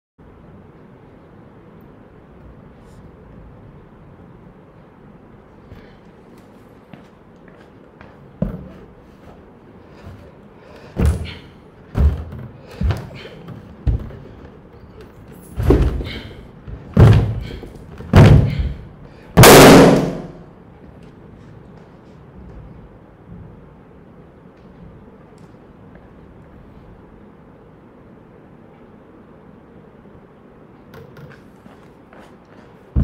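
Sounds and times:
feet stomping on balloon: 10.9s - 14.6s, 15.6s - 20.1s.

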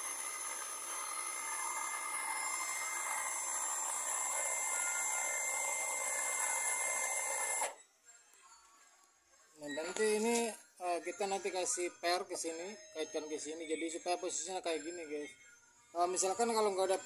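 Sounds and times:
electric winch motor whining: 0.0s - 7.8s.

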